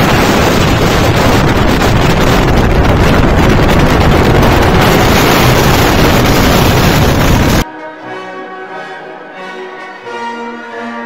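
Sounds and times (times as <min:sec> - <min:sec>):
wind buffeting microphone: 0:00.0 - 0:07.6.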